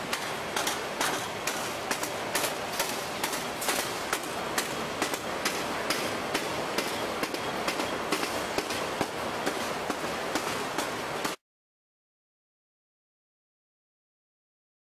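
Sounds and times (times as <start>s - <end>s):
machine clattering: 0.0s - 11.4s
sharp machine knocks: 0.0s - 11.4s.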